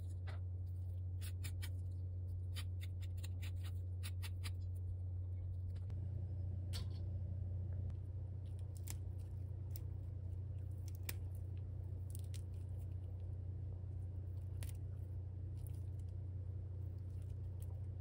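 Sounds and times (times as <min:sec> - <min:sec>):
steady low hum: 0:00.0 - 0:18.0
dry leaves snapping: 0:08.5 - 0:10.0, 0:10.6 - 0:13.0.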